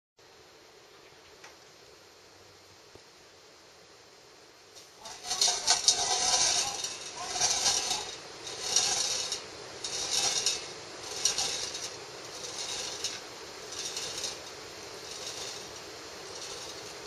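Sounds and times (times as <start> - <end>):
marble rolling in metal can: 4.8 - 17.0.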